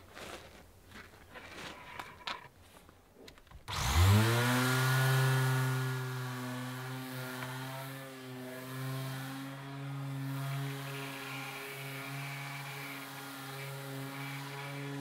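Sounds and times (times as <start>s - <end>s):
electric palm sander running: 3.7s - 15.0s.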